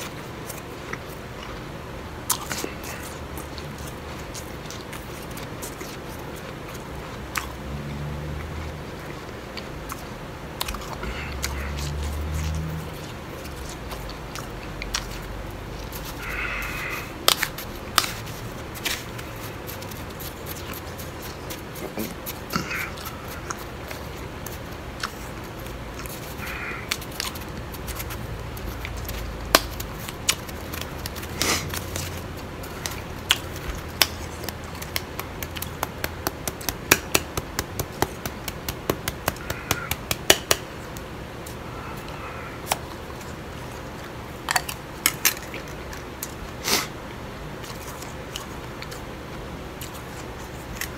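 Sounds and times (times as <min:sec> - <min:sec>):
ice being chewed: 0:00.1 - 0:07.6, 0:08.3 - 0:40.0.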